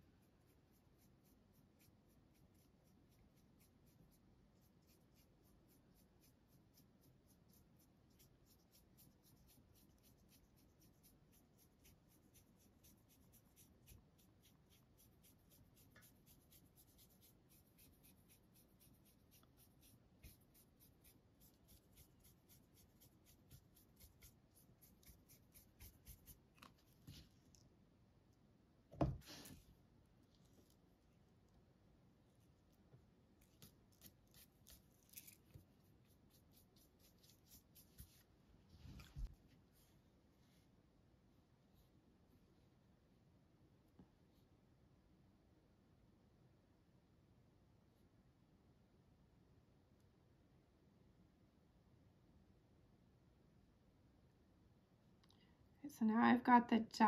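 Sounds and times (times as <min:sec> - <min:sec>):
brush pen strokes on paper: 0:00.0 - 0:27.6, 0:29.0 - 0:31.0, 0:33.4 - 0:40.8.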